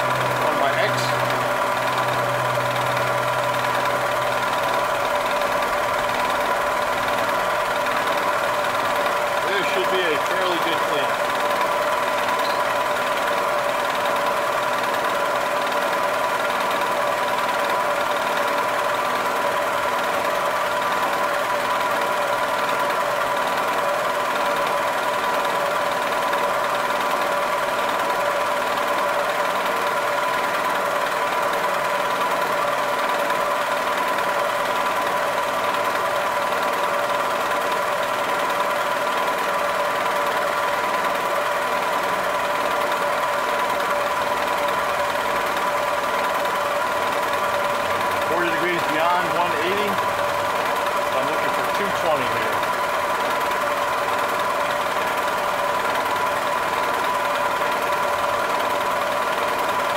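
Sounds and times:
end mill cutting metal: 0.0s - 20.0s
milling machine spindle whine: 0.0s - 59.9s.

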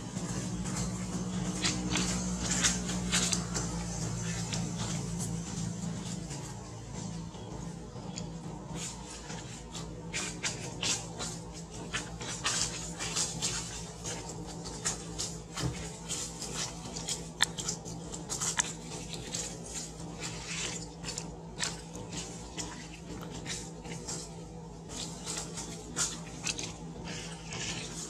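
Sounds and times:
dry leaves crackling and rustling: 0.0s - 7.3s, 8.8s - 28.0s
steady low hum: 0.0s - 28.0s.

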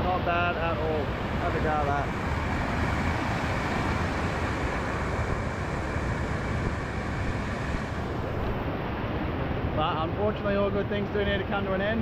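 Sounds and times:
waterfall rushing: 0.1s - 8.4s.

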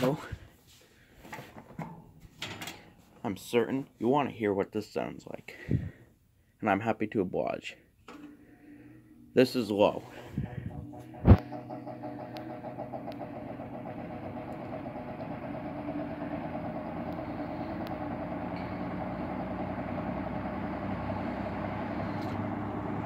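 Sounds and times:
fan motor hum and blade rush: 10.1s - 23.0s.

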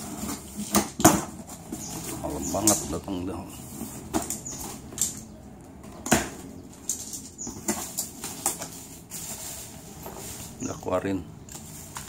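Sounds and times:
plastic packing rustling: 6.0s - 10.8s.

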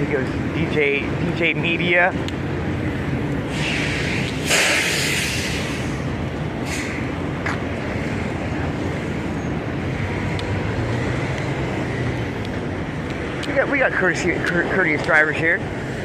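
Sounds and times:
air brakes hissing: 3.4s - 7.1s.

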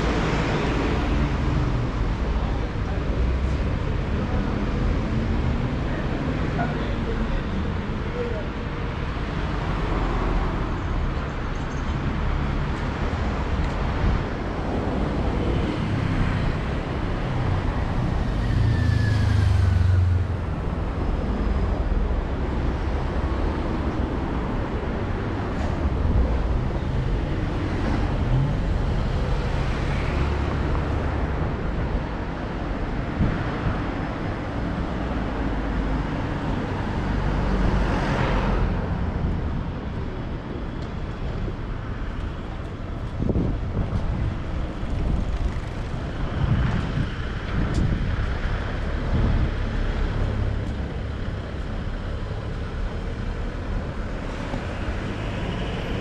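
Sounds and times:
road rumble of cars: 0.0s - 56.0s
loud vehicle passing: 15.0s - 20.7s.

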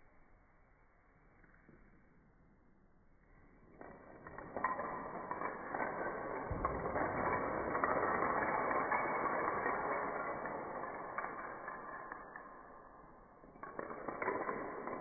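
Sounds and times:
dominoes clattering: 3.9s - 15.0s.

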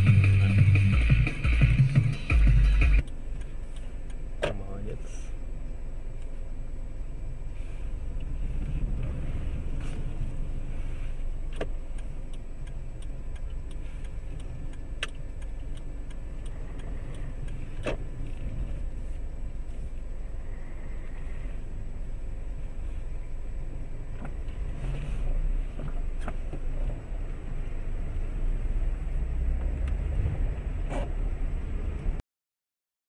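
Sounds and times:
car engine rumble: 0.0s - 32.2s
road noise: 0.0s - 32.2s
faint ticks: 3.0s - 4.7s, 11.2s - 21.2s
sharp clicks: 11.5s - 18.0s.

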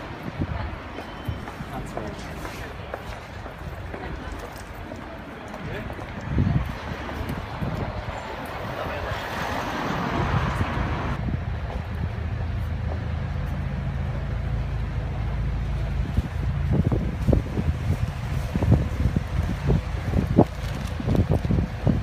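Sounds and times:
low vehicle engine rumble: 9.9s - 22.0s.

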